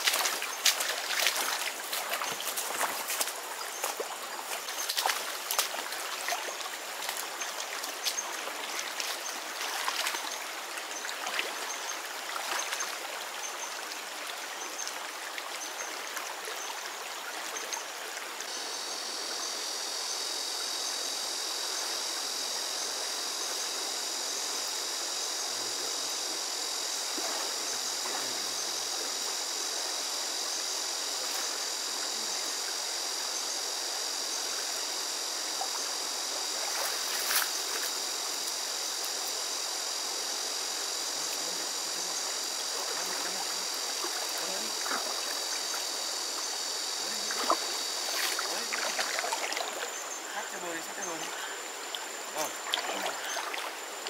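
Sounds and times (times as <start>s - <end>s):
footsteps in grass: 0.0s - 5.9s
stream water flowing: 0.0s - 54.0s.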